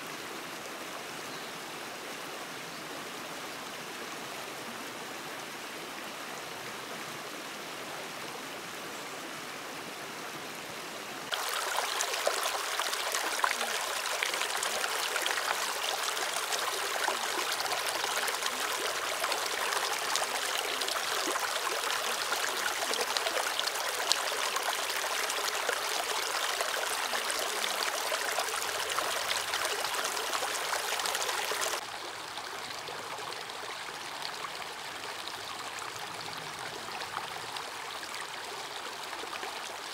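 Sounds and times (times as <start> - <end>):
stream rushing over rocks: 1.8 - 39.9
water rippling over stones: 11.3 - 39.9.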